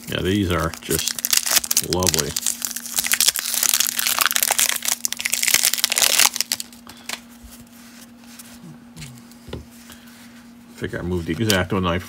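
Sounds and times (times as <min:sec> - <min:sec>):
cellophane wrapper crinkling: 0:00.0 - 0:08.1
handling cards: 0:00.0 - 0:11.8.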